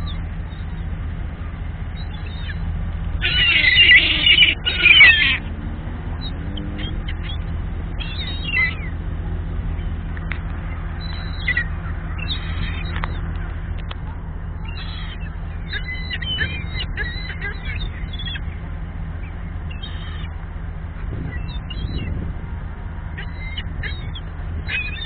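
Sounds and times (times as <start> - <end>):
gulls squawking: 0.0 - 25.0
steady low hum: 0.0 - 25.0.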